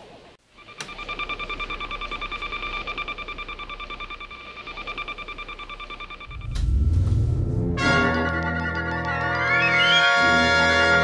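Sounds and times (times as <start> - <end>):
electronic beeping: 0.6 - 7.5.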